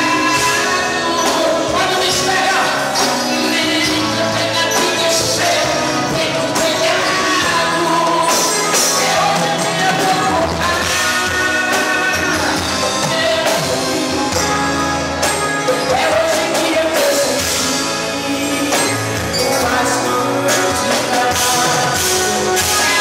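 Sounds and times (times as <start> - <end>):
bass guitar: 0.0 - 23.0
congas: 0.0 - 23.0
drum kit: 0.0 - 23.0
keyboards: 0.0 - 23.0
person singing: 0.0 - 23.0.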